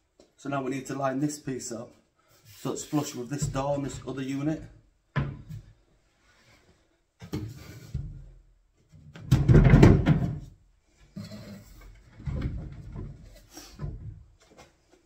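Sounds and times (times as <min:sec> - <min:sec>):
knocks on wooden cabinets: 0:09.2 - 0:10.5
cabinet thump: 0:09.3 - 0:10.4.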